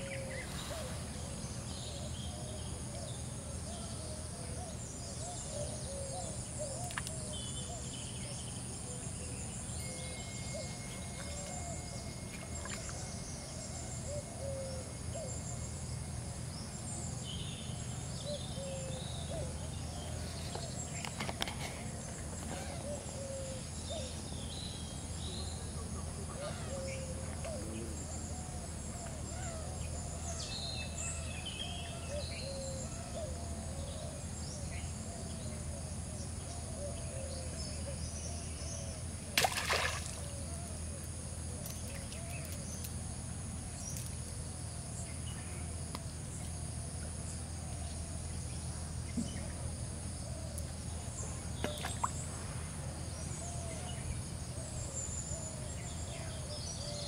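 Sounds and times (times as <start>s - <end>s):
splash in water: 39.4s - 40.3s.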